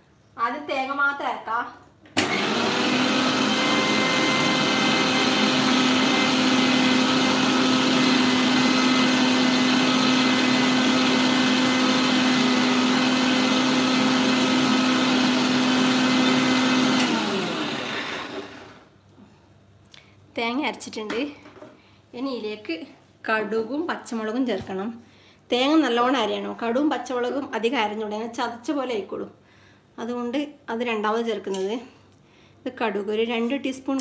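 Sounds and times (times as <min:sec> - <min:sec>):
mixer grinder humming: 0:02.2 - 0:18.9.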